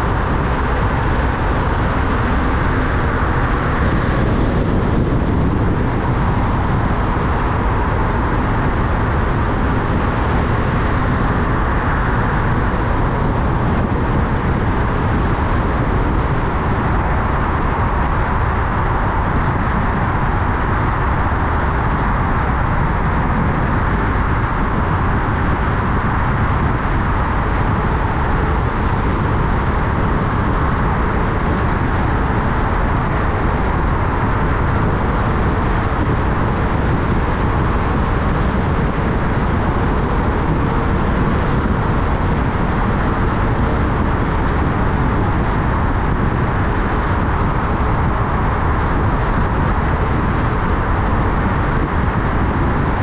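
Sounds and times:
car road noise: 0:00.0 - 0:53.0.

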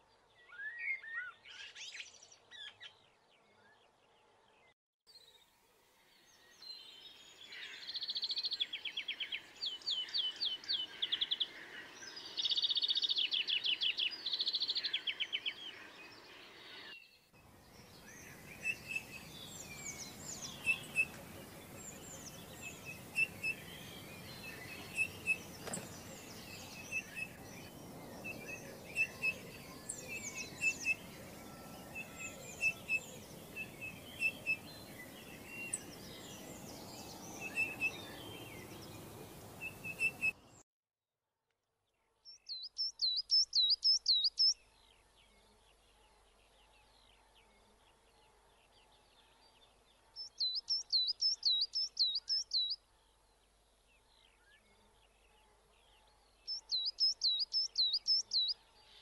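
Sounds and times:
songbirds twittering and chirping: 0:00.0 - 0:40.6, 0:42.0 - 0:59.0
faint background hiss: 0:15.7 - 0:40.6.

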